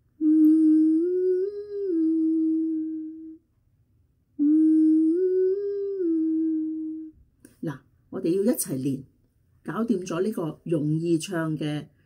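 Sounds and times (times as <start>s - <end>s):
woman humming: 0.2s - 3.4s, 4.4s - 7.2s.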